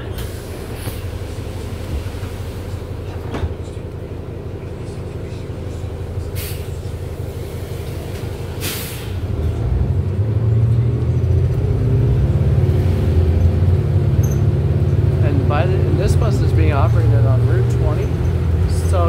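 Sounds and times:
bus engine rumbling: 0.0 - 19.0
air brake hisses: 6.4 - 6.8, 7.6 - 9.2.

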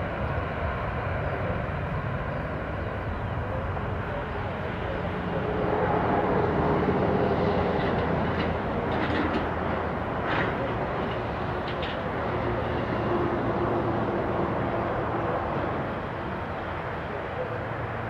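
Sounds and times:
jet engines roaring at takeoff: 0.0 - 18.0.

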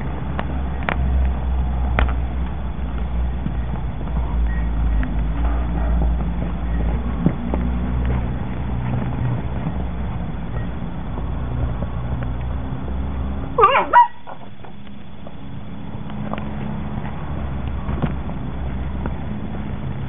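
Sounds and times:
wind rumble on microphone: 0.0 - 13.6, 14.4 - 20.0
puppy yelping and squealing: 13.6 - 14.5.

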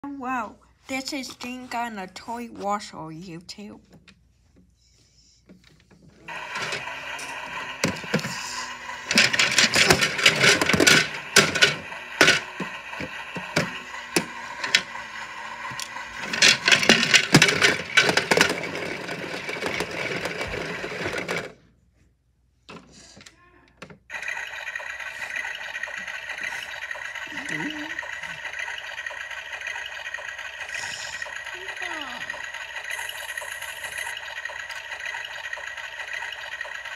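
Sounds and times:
small motor whining: 6.3 - 21.5, 24.1 - 36.9
wooden blocks rattling in drum: 6.3 - 21.5, 24.1 - 36.9.

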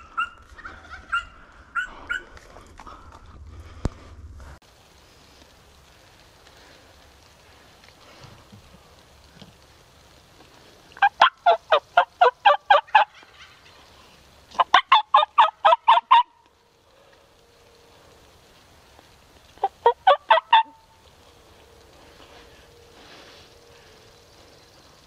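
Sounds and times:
turkey call yelping: 0.0 - 2.3, 11.0 - 13.8, 14.6 - 16.4, 19.6 - 20.8.

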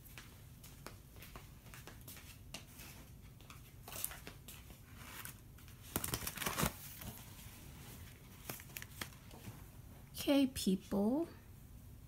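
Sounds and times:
crinkling and crackling: 1.3 - 9.7.

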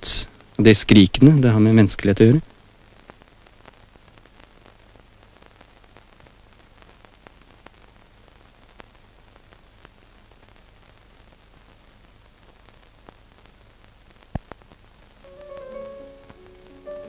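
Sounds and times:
film soundtrack hiss: 0.0 - 17.0
light clicks and crackles: 2.6 - 15.2.

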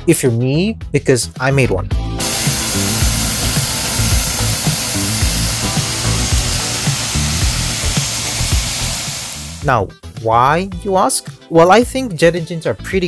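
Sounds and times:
background music with a beat: 1.9 - 13.0
jet engine roaring: 2.2 - 9.6.

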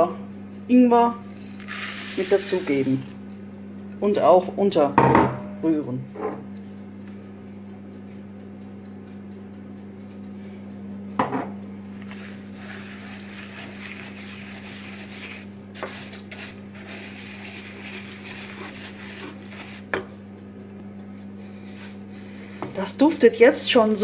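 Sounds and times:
spoon stirring oats: 1.3 - 3.1, 12.0 - 20.2
low hum: 5.3 - 24.0.

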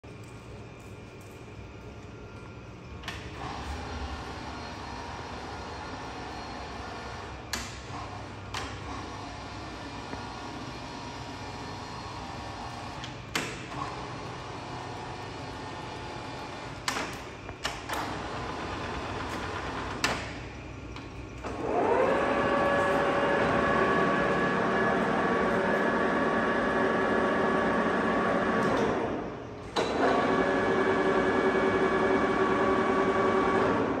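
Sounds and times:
lathe spindle whining: 21.4 - 29.1.

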